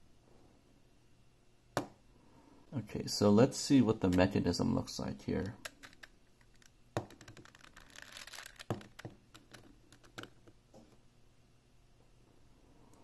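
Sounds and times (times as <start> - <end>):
plastic puzzle cube clicking: 5.4 - 10.5
scratchy plastic rubbing: 5.4 - 10.5.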